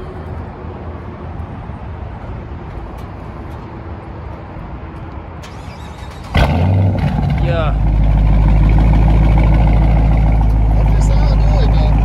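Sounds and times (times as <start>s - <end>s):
car engine idling: 6.0s - 12.0s.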